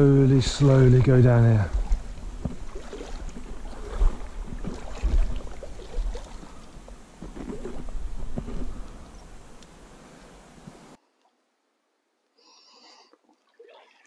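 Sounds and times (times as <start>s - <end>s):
water sloshing around wading legs: 1.0s - 9.8s, 13.2s - 14.0s.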